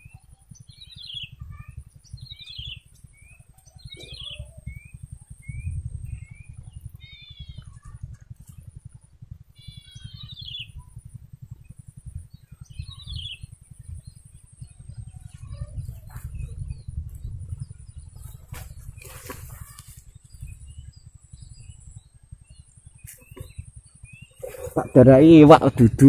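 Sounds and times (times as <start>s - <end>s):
high-pitched hum: 0.0s - 26.0s
low rumble: 0.0s - 26.0s
brief rustles: 18.2s - 20.1s.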